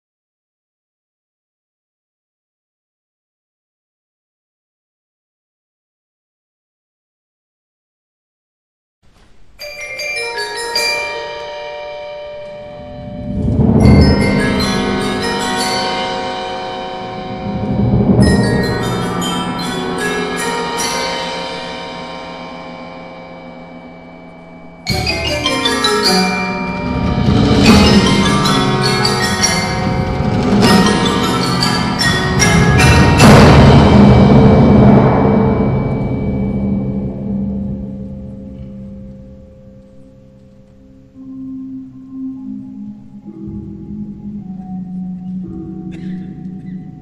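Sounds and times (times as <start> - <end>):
tuned mallet percussion: 9.6 - 47.0
low rolling swells: 12.6 - 20.4, 26.6 - 38.4.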